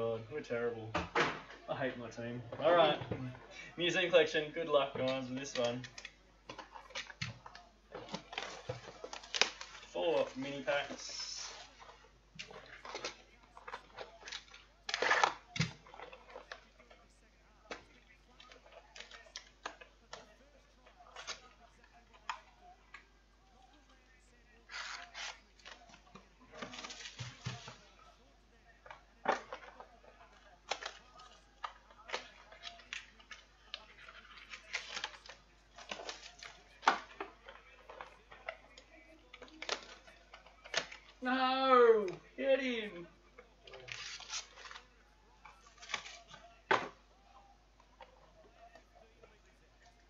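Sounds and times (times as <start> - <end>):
foil wrappers crinkling: 3.8 - 17.0, 24.4 - 28.1, 29.3 - 41.2, 43.6 - 45.0, 45.6 - 46.9.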